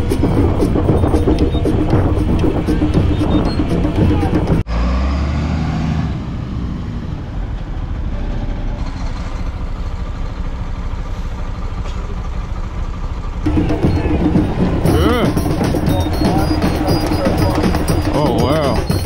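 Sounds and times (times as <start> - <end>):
motorbike engine running: 0.0 - 4.6, 11.6 - 19.0
wind noise on microphone: 0.0 - 4.6.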